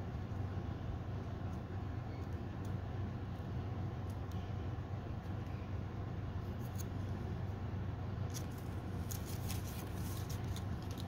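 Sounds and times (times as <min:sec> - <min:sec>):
paper crinkling: 0:08.3 - 0:11.0.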